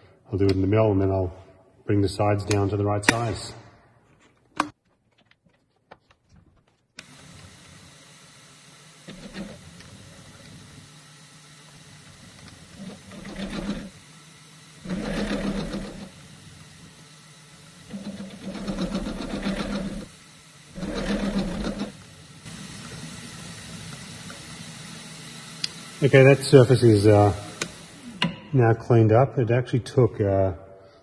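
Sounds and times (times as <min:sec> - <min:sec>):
milling spindle running: 0:07.0 - 0:28.4.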